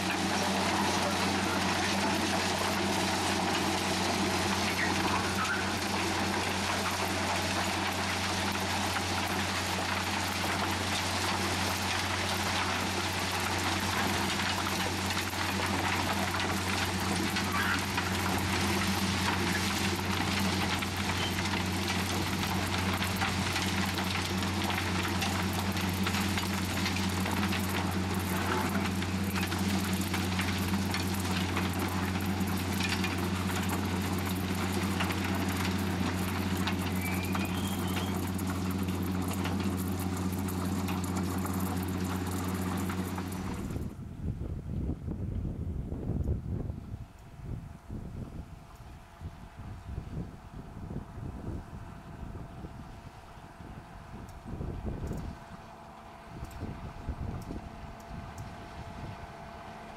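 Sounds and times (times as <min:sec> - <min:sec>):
ballast stones hissing and rattling: 0:00.0 - 0:43.8
diesel engine humming: 0:00.0 - 0:44.7.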